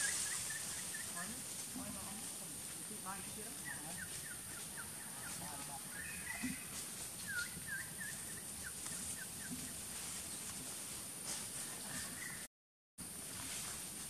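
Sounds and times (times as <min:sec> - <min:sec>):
steady high hiss: 0:00.0 - 0:04.7.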